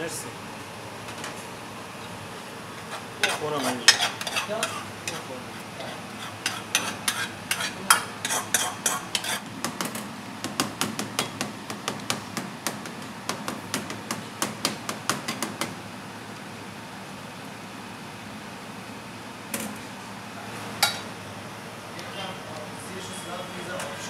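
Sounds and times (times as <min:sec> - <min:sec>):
metal spoon scraping aluminium dish: 0:02.8 - 0:09.4.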